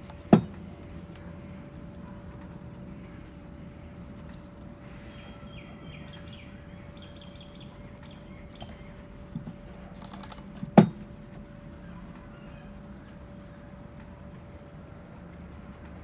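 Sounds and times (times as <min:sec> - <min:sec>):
faint steady hum: 0:00.0 - 0:16.0
faint bird chirps: 0:04.8 - 0:09.2, 0:11.8 - 0:13.7.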